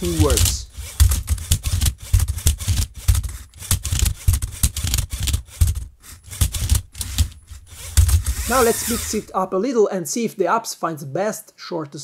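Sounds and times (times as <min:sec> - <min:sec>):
robot motors and gears: 0:00.0 - 0:09.4.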